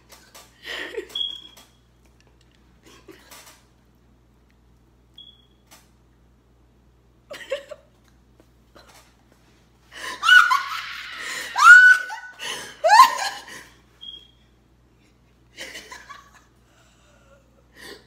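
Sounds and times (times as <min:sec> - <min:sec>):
girls laughing: 0:10.0 - 0:13.9, 0:15.6 - 0:16.6.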